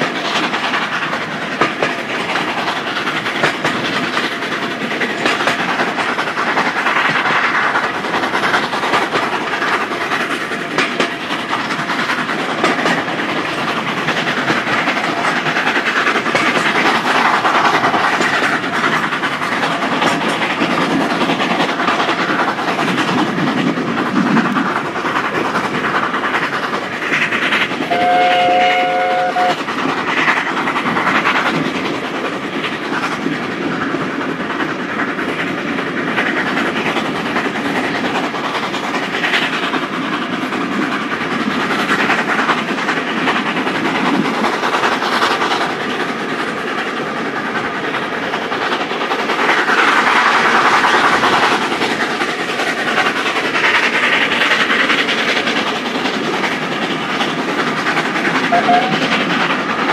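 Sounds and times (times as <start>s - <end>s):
steam locomotive exhaust: 0.0s - 59.9s
train wheels clicking over rail joints: 0.0s - 59.9s
steam whistle: 27.9s - 29.6s, 58.5s - 59.0s.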